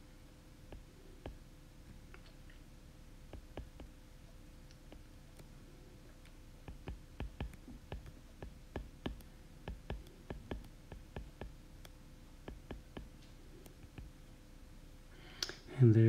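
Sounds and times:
stylus tapping on glass screen: 0:03.3 - 0:04.0, 0:06.6 - 0:14.2.

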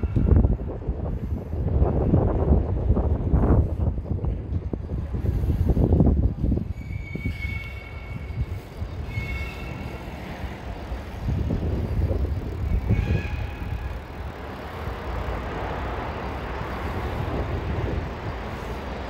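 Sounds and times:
traffic noise: 0:00.0 - 0:19.0
wind on microphone: 0:00.0 - 0:19.0
vehicle hiss: 0:13.6 - 0:19.0.

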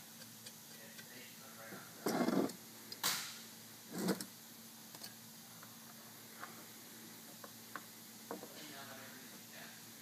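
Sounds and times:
faint ticks of metal parts: 0:00.2 - 0:01.1.

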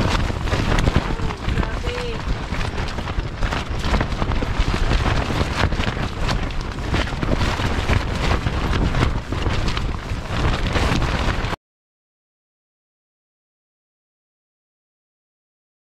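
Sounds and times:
strong wind buffeting microphone: 0:00.0 - 0:11.6
tent fabric crackling: 0:00.0 - 0:11.6.

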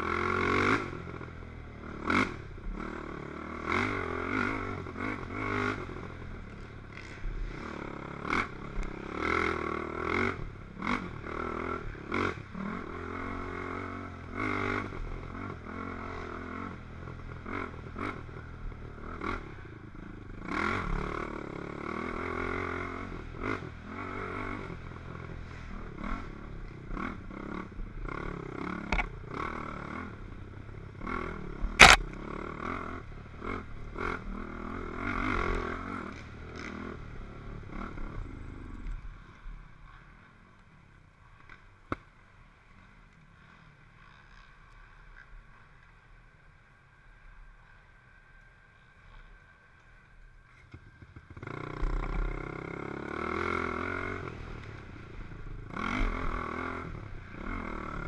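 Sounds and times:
quad engine revving: 0:00.0 - 0:01.0, 0:01.9 - 0:05.9, 0:31.0 - 0:37.0, 0:55.7 - 0:58.0.

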